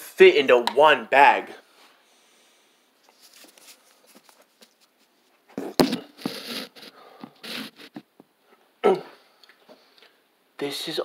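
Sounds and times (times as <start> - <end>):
phone rustling and scraping: 3.0 - 8.1.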